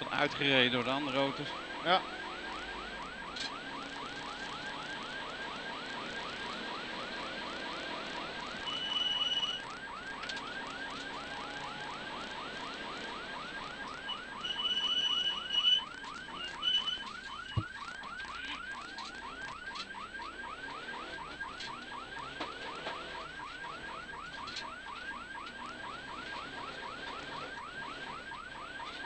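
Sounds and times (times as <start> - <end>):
car engine and road noise: 0.0 - 29.0
warning siren yelping: 0.0 - 29.0.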